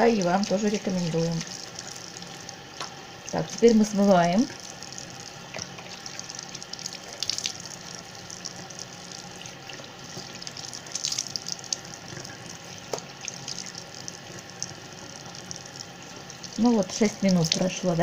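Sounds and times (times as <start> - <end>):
tap water running into sink: 0.0 - 18.0.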